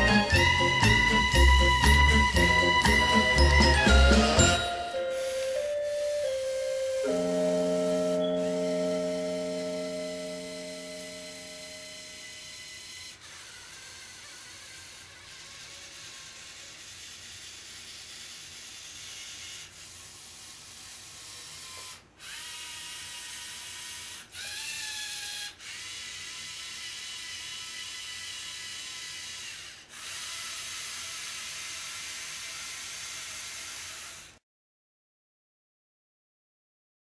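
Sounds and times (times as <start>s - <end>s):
servo motors whining: 0.0s - 34.4s.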